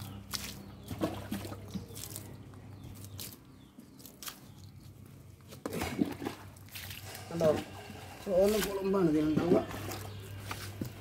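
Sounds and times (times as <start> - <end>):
water trickling from hose: 0.0 - 5.0, 5.6 - 11.0.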